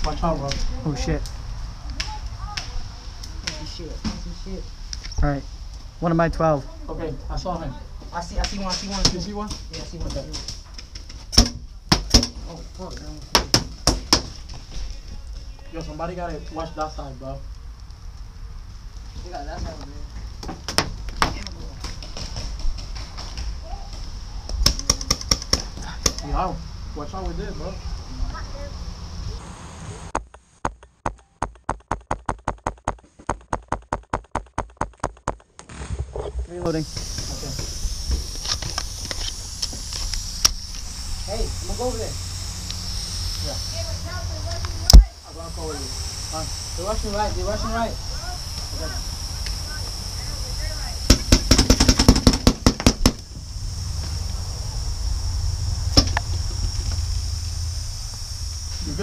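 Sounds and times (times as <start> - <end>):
paintball marker shots: 11.3 - 12.4, 51.1 - 53.2
paintball marker firing rapid shots: 31.4 - 35.9, 51.1 - 53.2.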